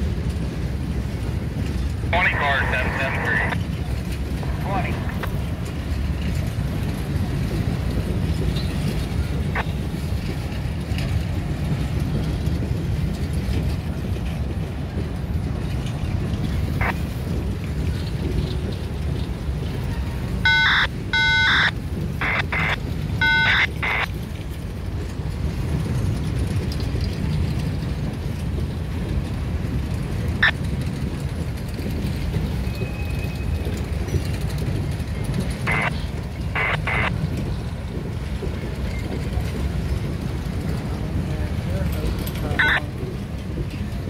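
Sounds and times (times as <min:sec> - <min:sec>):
freight train wheels rumbling: 0:00.0 - 0:44.0
short high-pitched tones: 0:20.5 - 0:24.0, 0:42.6 - 0:42.8.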